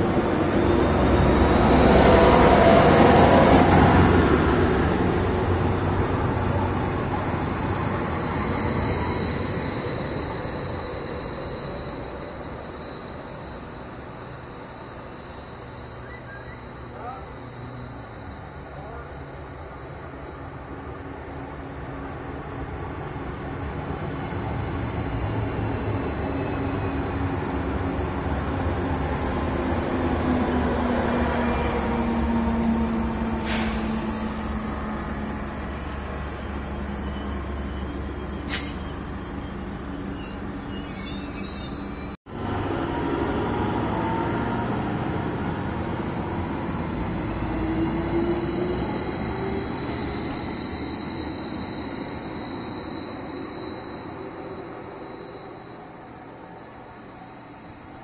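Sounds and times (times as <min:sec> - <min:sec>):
train engines and wheels rumbling: 0:00.0 - 0:58.0
short high squeal: 0:06.6 - 0:18.5, 0:33.4 - 0:42.2, 0:45.0 - 0:57.9.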